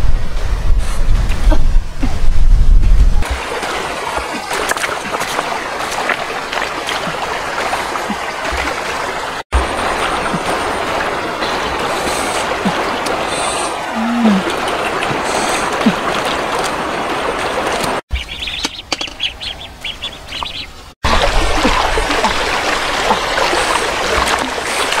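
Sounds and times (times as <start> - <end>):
running water: 3.2 - 25.0
small water splashes: 3.2 - 25.0.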